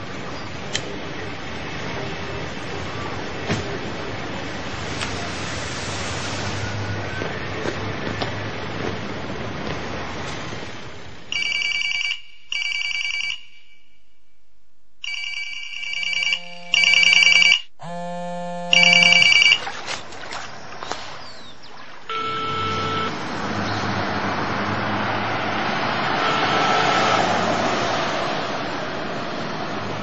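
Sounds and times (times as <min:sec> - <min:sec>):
telephone ringer trilling: 0:15.1 - 0:19.6
low buzzing tone: 0:16.3 - 0:19.8.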